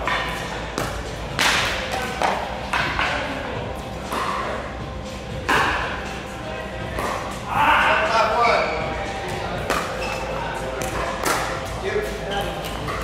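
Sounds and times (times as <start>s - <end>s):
pickleball paddles hitting balls: 0.0s - 3.4s, 4.0s - 4.6s, 6.9s - 7.4s, 9.6s - 11.6s, 12.4s - 13.0s.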